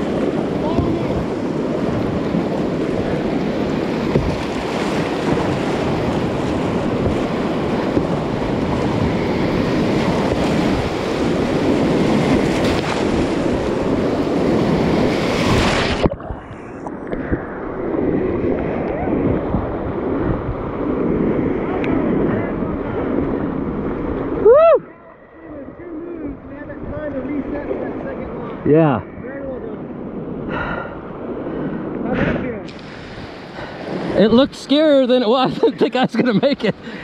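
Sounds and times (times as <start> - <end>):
whitewater rushing and splashing: 0.0 - 29.7, 30.5 - 37.0
wind buffeting microphone: 0.0 - 37.0.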